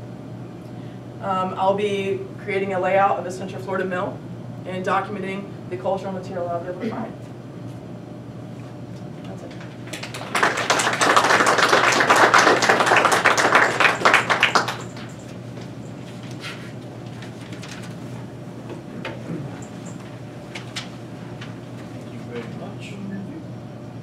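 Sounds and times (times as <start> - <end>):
audience applauding: 9.9 - 15.3.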